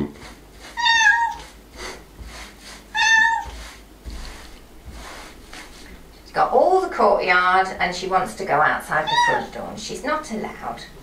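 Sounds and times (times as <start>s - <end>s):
cat meowing: 0.8s - 1.5s, 2.9s - 3.6s, 9.0s - 9.5s.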